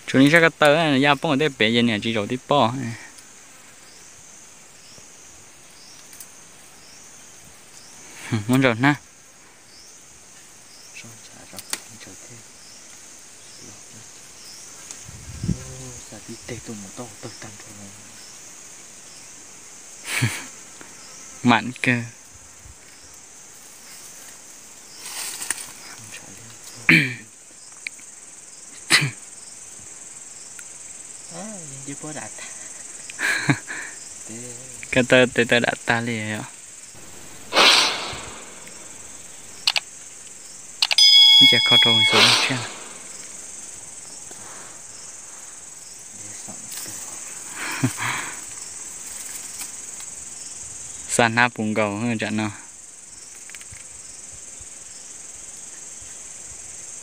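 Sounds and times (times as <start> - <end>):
high-pitched insect chorus: 0.0 - 57.0
brush rustling: 22.8 - 26.8, 37.0 - 40.4, 48.9 - 50.1
brief rustle: 25.0 - 25.8
sharp click: 37.5 - 38.8, 39.6 - 39.8, 40.8 - 43.3.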